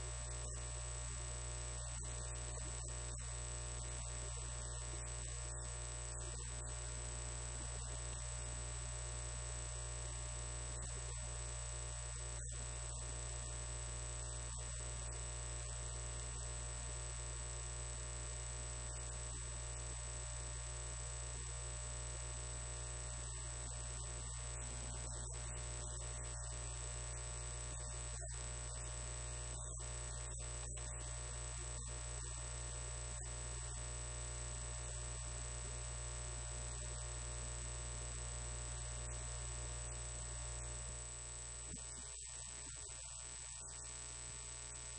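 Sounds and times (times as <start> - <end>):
high-pitched whine and hiss: 23.2 - 33.7, 38.2 - 44.9.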